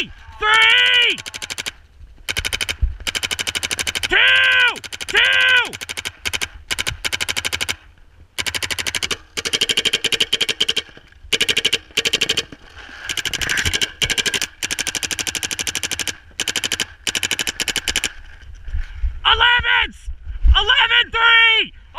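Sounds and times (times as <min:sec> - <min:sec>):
paintball markers firing bursts: 0:01.2 - 0:18.3.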